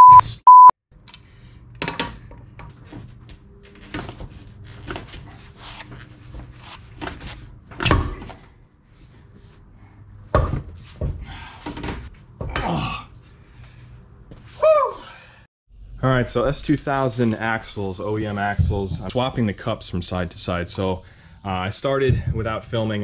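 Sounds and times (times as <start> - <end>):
heavy thump: 22.1 - 22.5.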